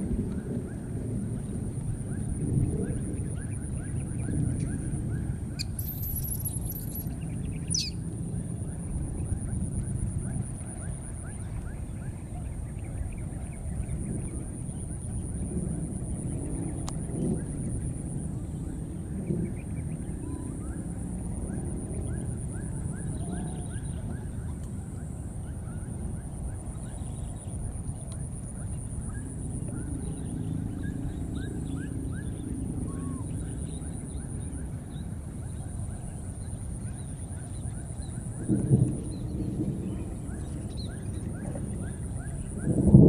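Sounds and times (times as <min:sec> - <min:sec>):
steady low rumble: 0:26.6 - 0:43.0.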